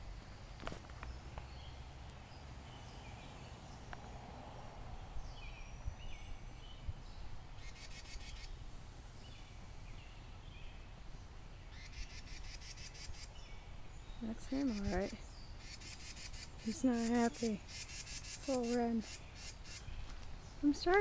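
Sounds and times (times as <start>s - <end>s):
wren chirping: 5.0s - 8.6s, 9.2s - 21.0s
bird harsh rattle call: 7.6s - 8.6s, 11.8s - 13.4s, 14.5s - 19.9s.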